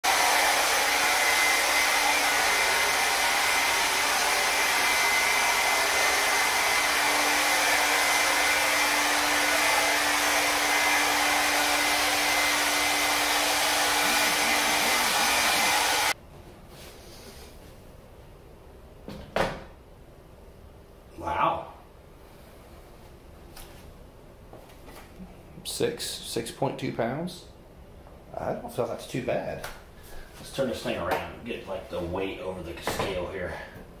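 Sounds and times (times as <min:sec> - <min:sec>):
hair dryer blowing: 0:00.0 - 0:16.2.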